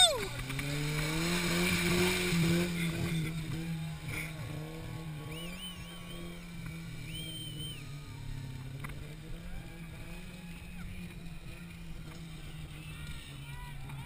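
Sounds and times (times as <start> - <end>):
truck engine running: 0.0 - 14.0.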